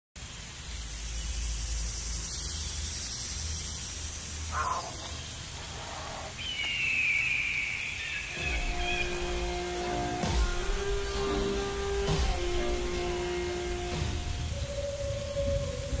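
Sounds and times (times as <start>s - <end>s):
underwater hiss: 0.2s - 6.5s.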